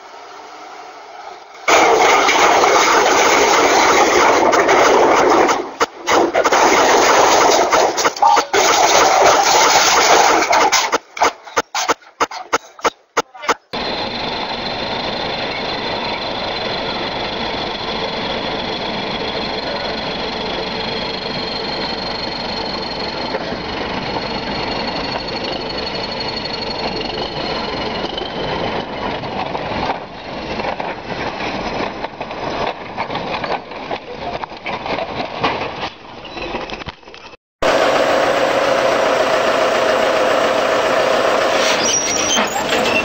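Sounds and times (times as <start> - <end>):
engine knocks and crackles: 1.7 - 13.1, 13.7 - 43.0
diesel engine running under load: 13.7 - 32.2, 37.6 - 43.0.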